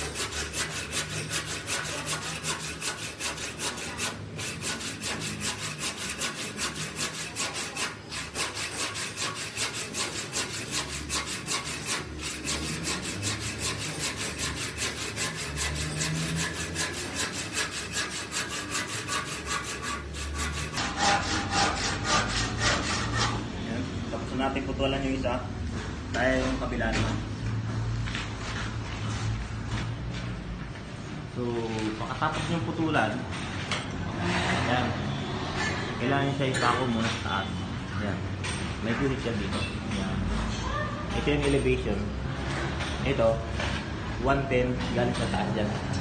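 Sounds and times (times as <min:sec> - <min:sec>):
handsaw cutting wood: 0:00.0 - 0:23.4.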